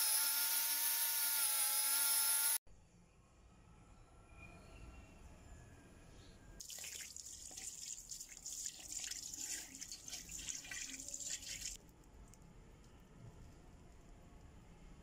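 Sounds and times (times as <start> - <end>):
hose water splashing on wheel: 6.6 - 11.8.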